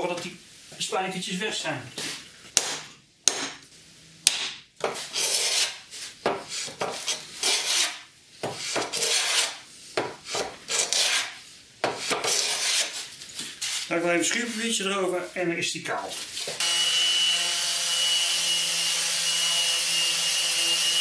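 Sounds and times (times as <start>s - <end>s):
sharp knocks: 2.6s - 3.6s
hand plane shaving wood: 5.0s - 5.8s, 6.4s - 8.0s, 8.6s - 9.6s, 10.2s - 11.4s, 12.0s - 13.0s.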